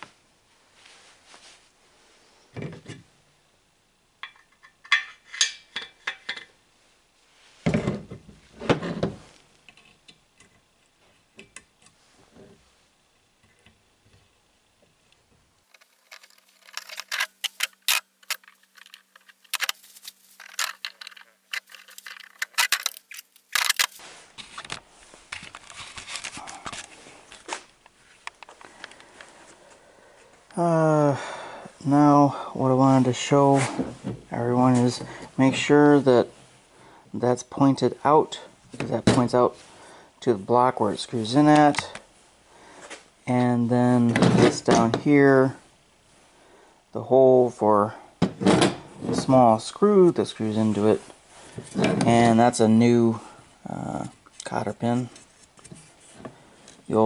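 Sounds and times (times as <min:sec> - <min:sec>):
metal parts and tools clinking: 0:04.2 - 0:06.5, 0:15.7 - 0:24.0.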